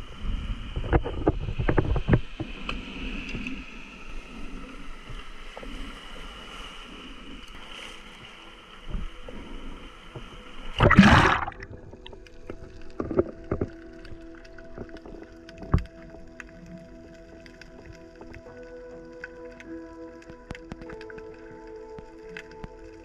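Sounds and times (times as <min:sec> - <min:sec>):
waves washing over rocks: 0:10.7 - 0:12.0
loud splash into water: 0:10.8 - 0:11.8.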